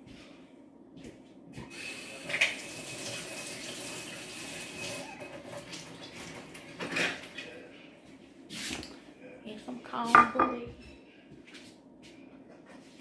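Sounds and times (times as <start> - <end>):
water running from tap: 1.6 - 7.4.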